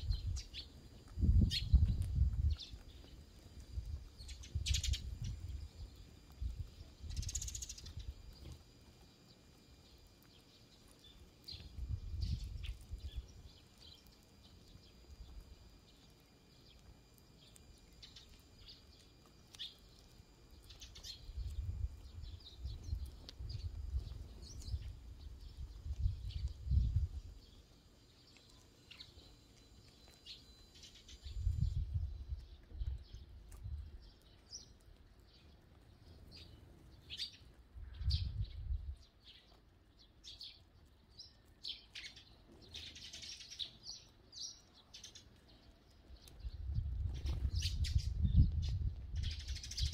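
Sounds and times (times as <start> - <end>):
sparrows chirping: 0.0 - 49.9.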